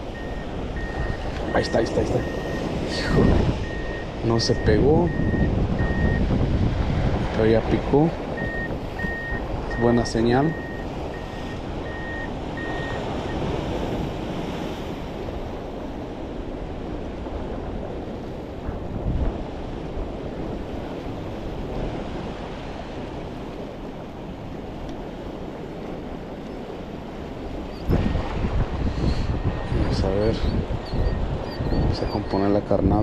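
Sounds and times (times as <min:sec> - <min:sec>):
faint reversing beeper: 0:00.0 - 0:06.2, 0:08.4 - 0:13.4, 0:29.2 - 0:32.7
waves washing against rocks: 0:00.0 - 0:31.5
wind buffeting microphone: 0:00.0 - 0:33.0.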